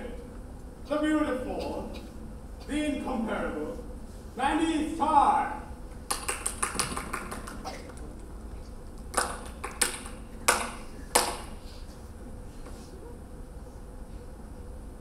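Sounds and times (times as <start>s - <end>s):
hard-soled footsteps on stage floor: 5.9s - 11.6s.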